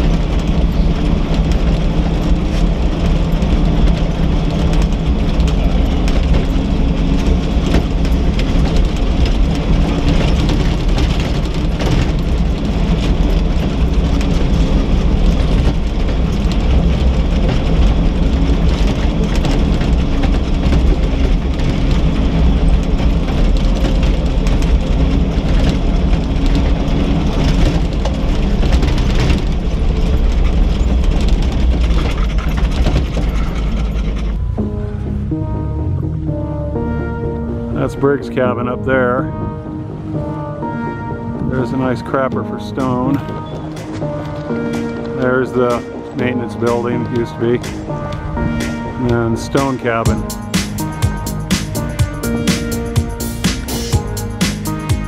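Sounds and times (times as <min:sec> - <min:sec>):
rattles and knocks over gravel: 0:00.0 - 0:34.6, 0:41.6 - 0:55.0
car engine running: 0:00.0 - 0:55.0.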